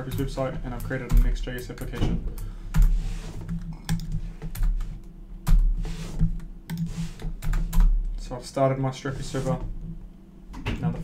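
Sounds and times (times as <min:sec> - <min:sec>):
typing on keyboard: 0:03.5 - 0:04.8.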